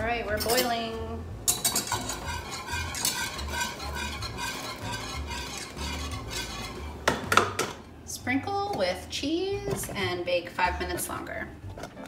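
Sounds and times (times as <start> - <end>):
whisk scraping metal saucepan: 0.4 - 0.8, 1.5 - 7.4.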